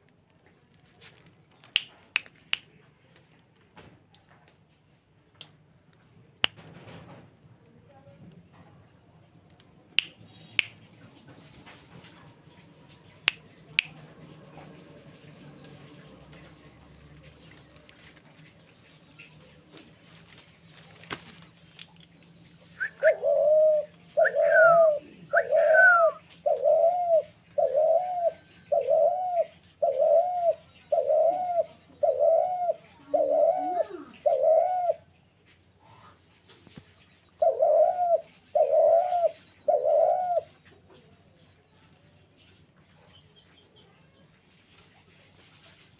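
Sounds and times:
dove cooing: 22.6s - 35.2s, 37.4s - 41.0s.

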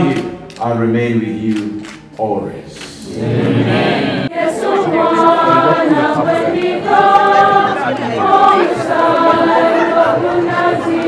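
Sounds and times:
choir singing unaccompanied: 3.0s - 11.0s.

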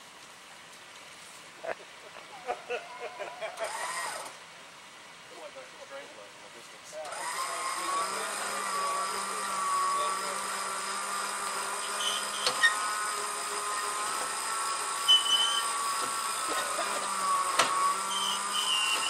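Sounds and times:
spinning wheels whining: 2.6s - 4.4s, 7.0s - 19.0s.

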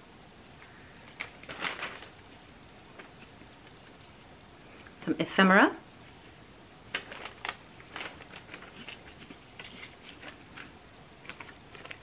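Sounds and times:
light clicks and crinkles: 0.6s - 4.1s, 6.0s - 12.0s
paper and packaging rustling: 1.0s - 4.1s, 6.1s - 12.0s.

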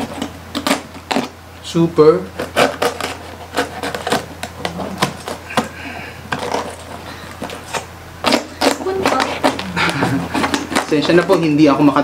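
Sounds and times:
knife crunching crisp pork skin: 2.3s - 11.6s.

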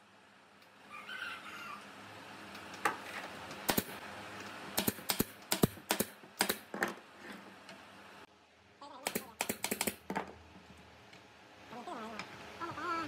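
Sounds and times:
nail gun firing: 3.6s - 4.0s, 4.8s - 7.0s, 9.0s - 10.2s.

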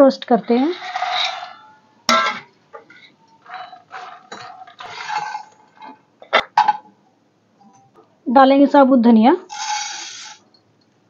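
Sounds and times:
seeds rattling in a pan: 9.5s - 10.5s.

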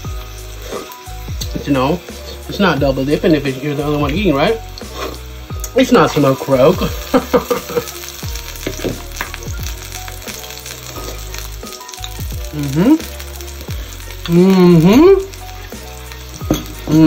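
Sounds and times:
meat sizzling on grill plate: 0.0s - 17.0s
man's voice: 1.5s - 4.6s, 5.8s - 7.0s.

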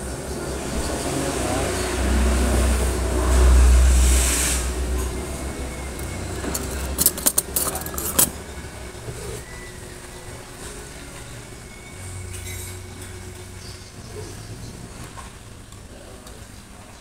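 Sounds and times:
vehicle passing by: 0.0s - 7.1s
metal spoon clinking on plates: 5.9s - 9.4s.

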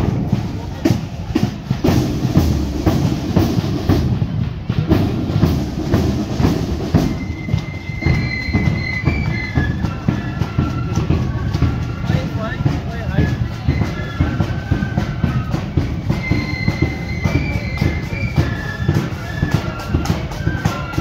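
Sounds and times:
marching drums beating: 0.0s - 21.0s
high flute notes: 6.0s - 21.0s.

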